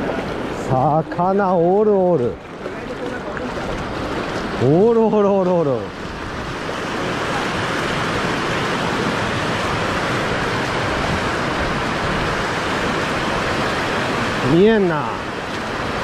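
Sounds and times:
water rushing over weir: 0:00.0 - 0:16.0.

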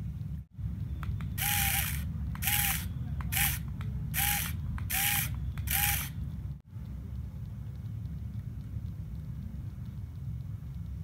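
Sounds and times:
toy motor whining with gear chatter: 0:01.4 - 0:06.2.

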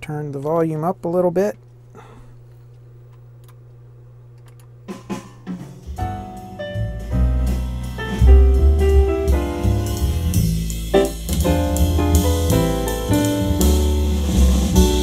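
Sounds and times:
music with drums and piano: 0:04.9 - 0:15.0.

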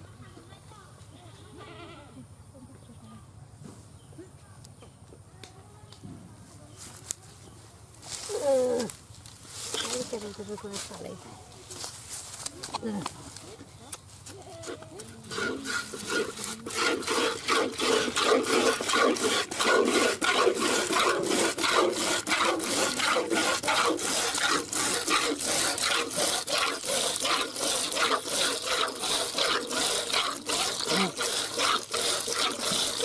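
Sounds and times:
milk squirting into bucket: 0:15.2 - 0:33.0.

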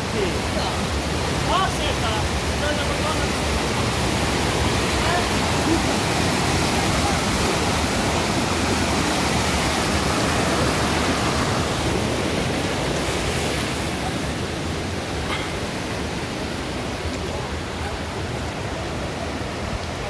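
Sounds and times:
stream rushing over rocks: 0:00.0 - 0:20.0.

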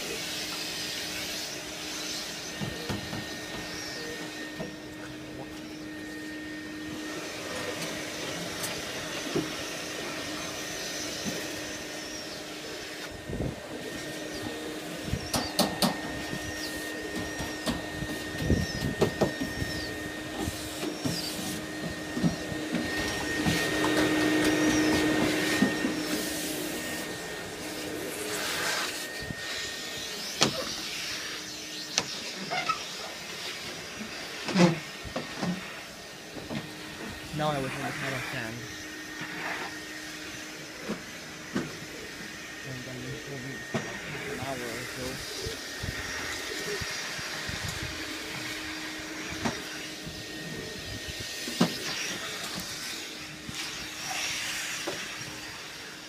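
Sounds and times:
exhaust fan humming: 0:00.0 - 0:56.0.

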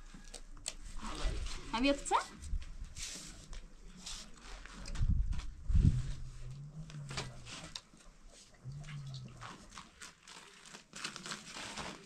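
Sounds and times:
flatbread crackling and rustling: 0:09.0 - 0:12.0.

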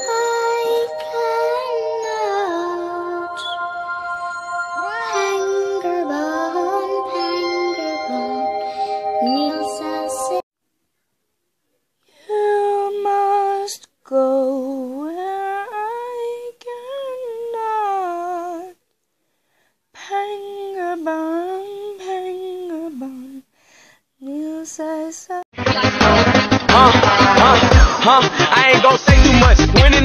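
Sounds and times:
high voice humming melody: 0:00.0 - 0:10.4.

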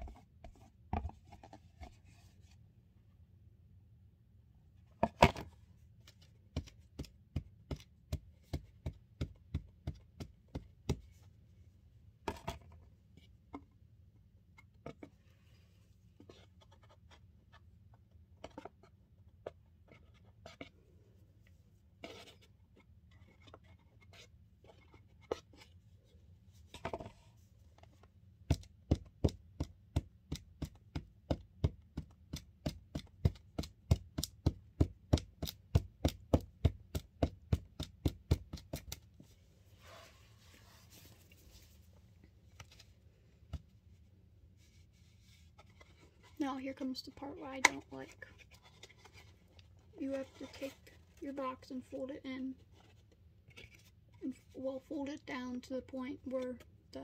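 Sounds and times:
spatula tapping in cardboard box: 0:06.5 - 0:11.2, 0:28.4 - 0:39.0.

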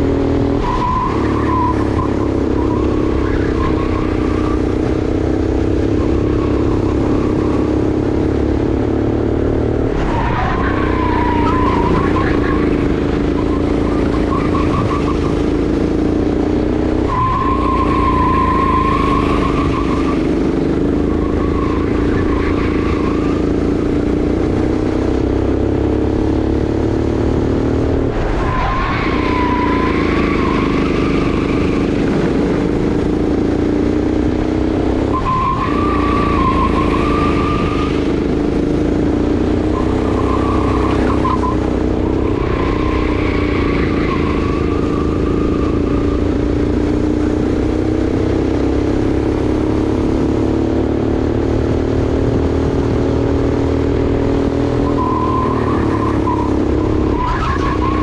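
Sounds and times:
kart engine running hard: 0:00.0 - 0:58.0
tyres squealing: 0:10.0 - 0:16.1, 0:28.3 - 0:32.0, 0:35.1 - 0:39.0, 0:39.6 - 0:47.0, 0:54.8 - 0:58.0.

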